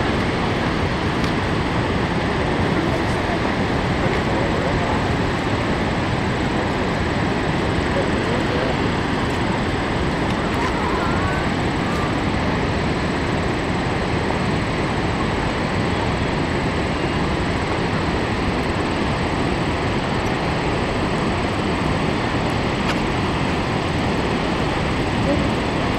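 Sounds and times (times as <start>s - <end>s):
waterfall rushing: 7.7s - 13.8s.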